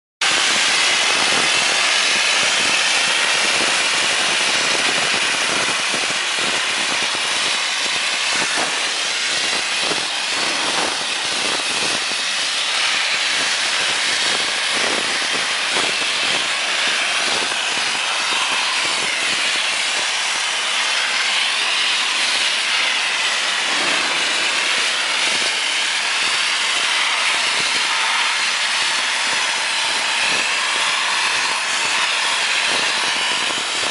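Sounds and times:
dry ice blaster hissing: 0.2s - 33.9s.

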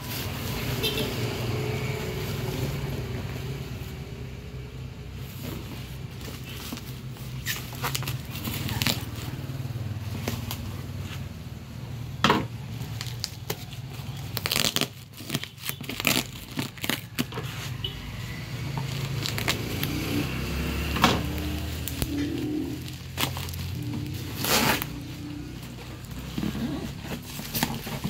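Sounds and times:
plastic packing crinkling and tearing: 5.5s - 9.4s, 12.5s - 17.8s, 18.6s - 28.0s
sharp clicks and crackles: 12.7s - 17.4s, 18.7s - 20.0s, 20.9s - 26.5s.

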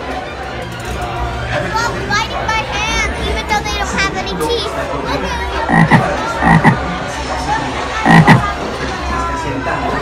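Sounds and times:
crowd noise: 0.0s - 10.0s
low croaks: 5.7s - 6.8s, 8.0s - 8.6s.

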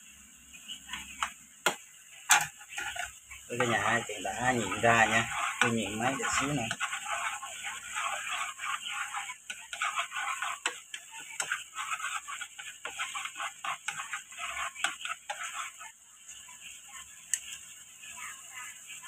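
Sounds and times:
sauce sizzling and bubbling: 0.0s - 19.0s
spoon stirring and clicking: 1.2s - 15.9s.

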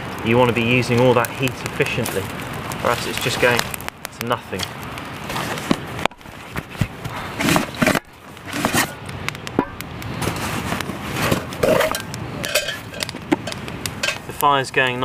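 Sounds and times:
canvas scraping and rustling: 5.2s - 9.0s, 10.2s - 13.5s.

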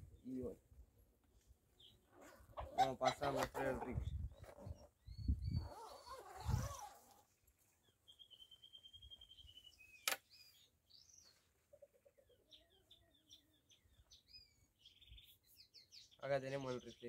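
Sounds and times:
birds chirping: 1.7s - 7.0s, 7.6s - 17.0s
sharp click: 10.0s - 10.2s.

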